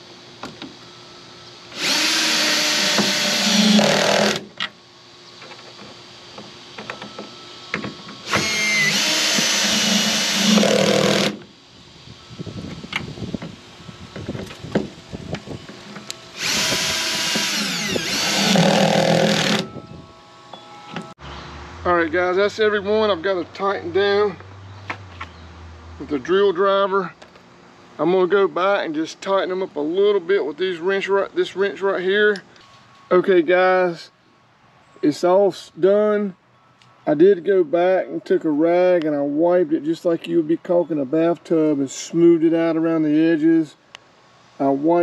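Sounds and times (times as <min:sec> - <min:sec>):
cordless drill whirring: 0:01.7 - 0:04.4, 0:08.2 - 0:11.4, 0:16.3 - 0:19.7.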